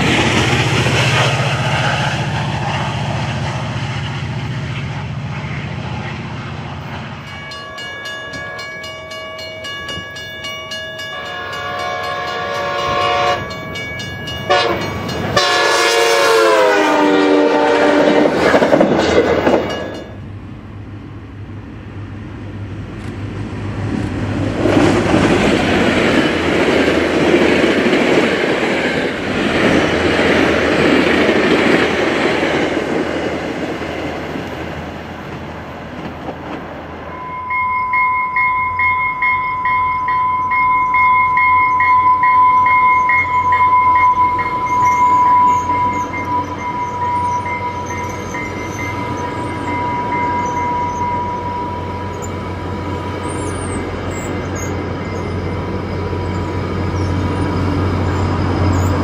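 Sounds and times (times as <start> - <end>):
locomotive engine hum: 0.0 - 59.0
train wheels rumbling on rails: 0.0 - 59.0
steady high ringing tone: 7.1 - 15.5, 37.0 - 59.0.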